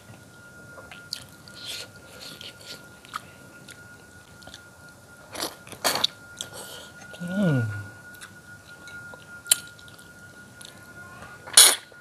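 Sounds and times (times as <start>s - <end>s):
person chewing and biting: 0.9s - 3.8s.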